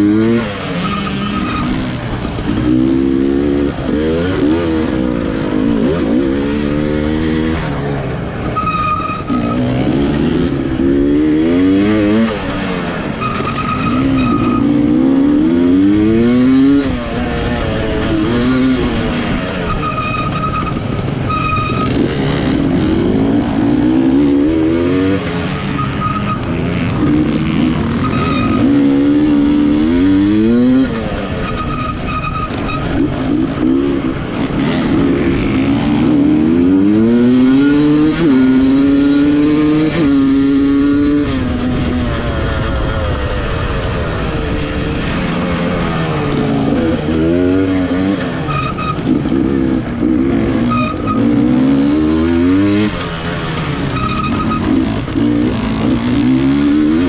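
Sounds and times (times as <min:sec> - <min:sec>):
two-stroke engine revving hard: 0:20.7 - 0:31.2, 0:32.5 - 0:41.7, 0:46.3 - 0:57.0.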